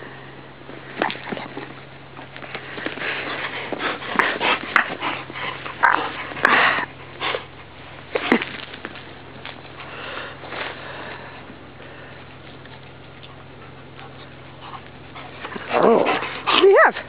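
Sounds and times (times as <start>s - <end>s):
dog sniffing and breathing hard: 2.4s - 8.1s, 9.6s - 17.0s.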